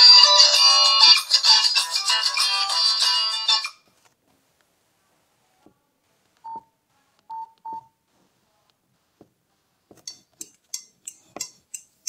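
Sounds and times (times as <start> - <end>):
phone keypad beeps: 7.3 - 7.9.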